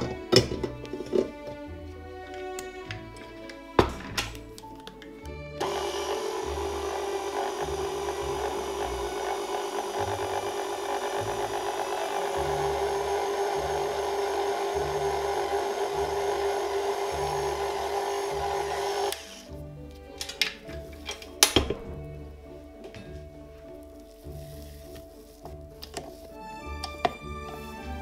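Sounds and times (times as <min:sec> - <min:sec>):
stand mixer motor running: 0:05.6 - 0:19.4.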